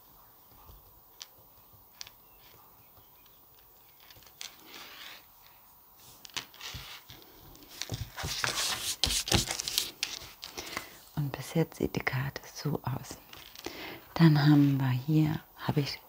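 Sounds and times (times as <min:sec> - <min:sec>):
paper and plastic rustling: 0:02.0 - 0:11.0.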